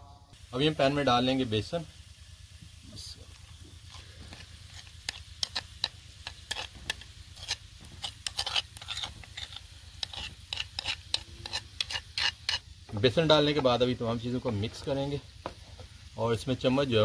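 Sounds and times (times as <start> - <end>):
light sizzle: 0.3 - 17.0
spoon scraping frying pan: 3.8 - 13.8.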